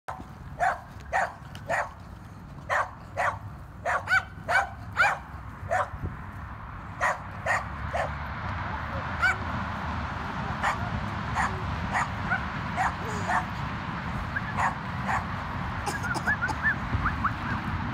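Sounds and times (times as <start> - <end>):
puppy yapping: 10.6 - 13.5, 14.4 - 15.3.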